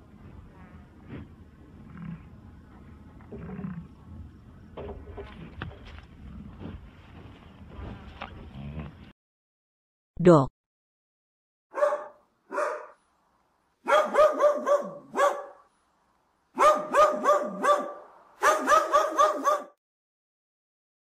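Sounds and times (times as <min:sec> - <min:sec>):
dog barking: 0:11.7 - 0:13.0, 0:13.8 - 0:15.7, 0:16.6 - 0:19.8.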